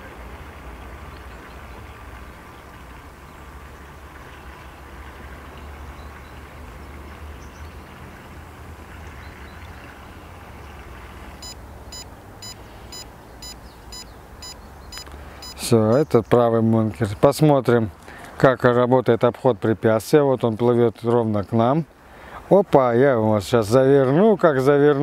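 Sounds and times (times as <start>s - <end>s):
short high electronic beeps: 11.4s - 16.0s.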